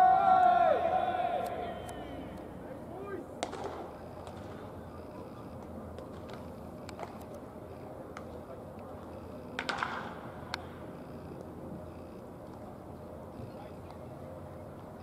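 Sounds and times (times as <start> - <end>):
murmur of distant voices: 0.0 - 15.0
baseball bat cracks: 3.4 - 4.5, 9.6 - 10.2.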